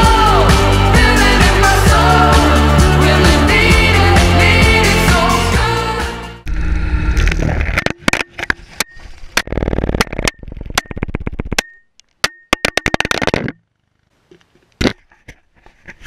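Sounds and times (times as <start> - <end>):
camera clattering on asphalt: 7.6 - 13.6.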